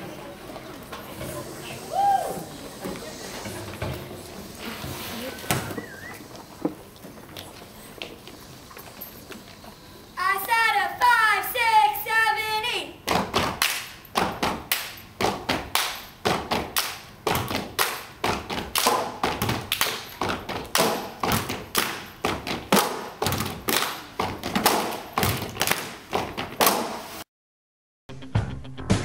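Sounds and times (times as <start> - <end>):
basketballs bouncing on wooden floor: 13.1 - 26.7.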